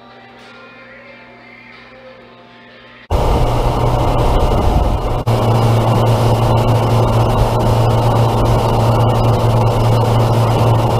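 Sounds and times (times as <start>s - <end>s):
outboard motor running: 3.1s - 10.9s.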